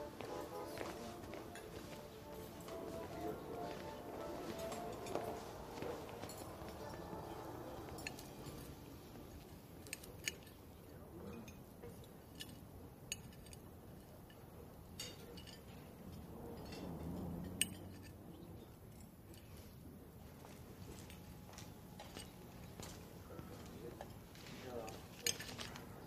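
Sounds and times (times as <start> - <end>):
cutlery clinking on dishes: 0.3 - 19.7.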